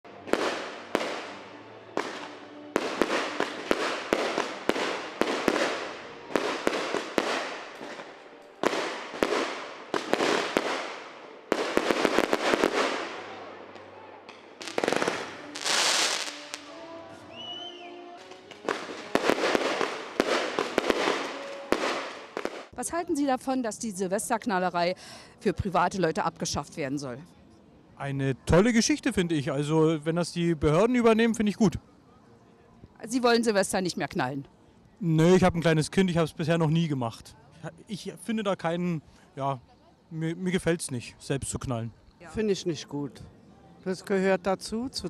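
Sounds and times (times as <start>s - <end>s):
firecrackers banging and crackling: 0.2s - 1.4s, 2.0s - 13.3s, 14.3s - 16.8s, 18.2s - 22.8s
firework hiss: 8.7s - 13.2s, 14.6s - 16.7s, 18.7s - 22.7s
firework whistle: 14.7s - 22.6s.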